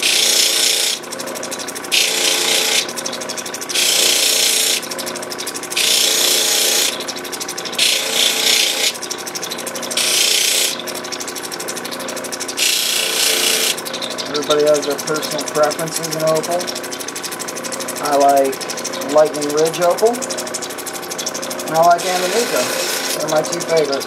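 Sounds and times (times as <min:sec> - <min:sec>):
stone grinding on wheel hiss: 0:00.0 - 0:01.0, 0:01.9 - 0:02.9, 0:03.7 - 0:04.9, 0:05.5 - 0:07.1, 0:07.8 - 0:09.0, 0:09.8 - 0:10.9, 0:12.4 - 0:13.8, 0:21.9 - 0:24.0
motor hum: 0:00.0 - 0:24.0
fine ticking: 0:01.1 - 0:24.0.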